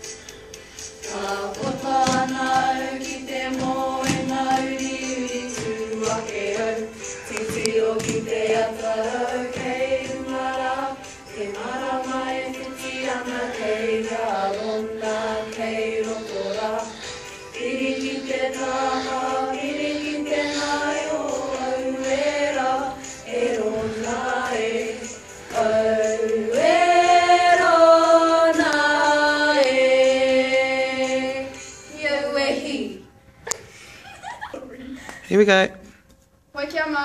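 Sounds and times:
girls singing together: 0:00.9 - 0:35.1.

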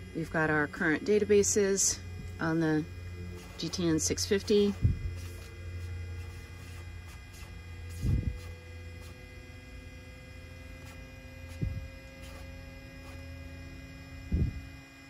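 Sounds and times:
electrical hum: 0:00.0 - 0:15.0
faint rising whine: 0:00.0 - 0:15.0
dull low thumps: 0:02.0 - 0:08.6, 0:11.4 - 0:12.1, 0:14.2 - 0:14.7.

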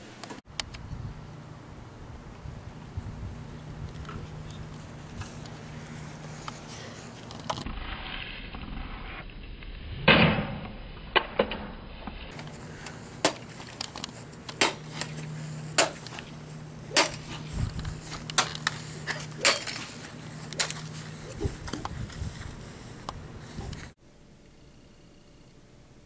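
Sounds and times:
golf club striking plastic: 0:16.9 - 0:17.5.

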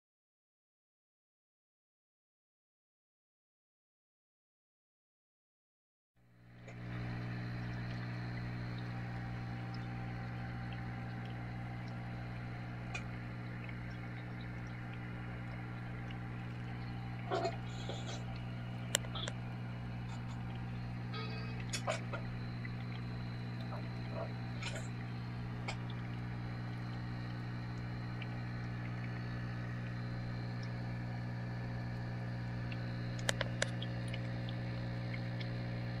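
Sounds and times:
aquarium equipment humming: 0:06.3 - 0:36.0
sharp clicks: 0:17.8 - 0:24.0, 0:32.7 - 0:34.3
small click: 0:18.4 - 0:19.4, 0:32.7 - 0:34.3.

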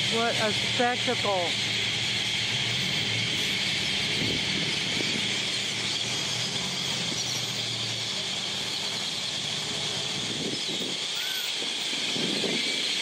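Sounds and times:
low traffic hum: 0:00.0 - 0:13.0
grackles squealing and whistling: 0:10.2 - 0:13.0.

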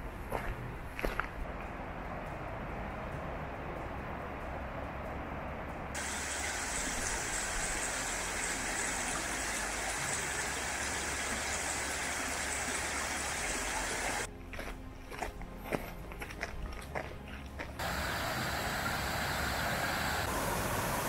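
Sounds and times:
footsteps on gravel: 0:00.3 - 0:01.4, 0:14.3 - 0:17.8
waterfall rushing: 0:06.0 - 0:14.3, 0:17.8 - 0:21.0.

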